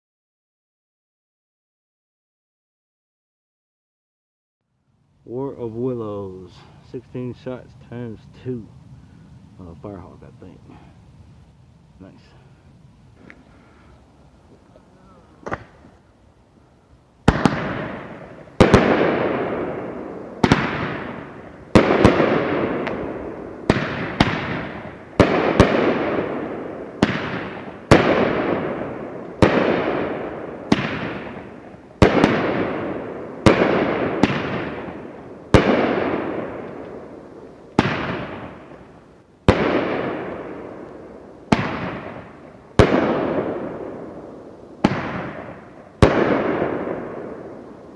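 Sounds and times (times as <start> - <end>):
small firework pop: 15.4 - 15.9
firework bangs with rumble: 17.2 - 37.1, 37.8 - 38.8, 39.4 - 40.9, 41.5 - 44.2, 44.8 - 47.6.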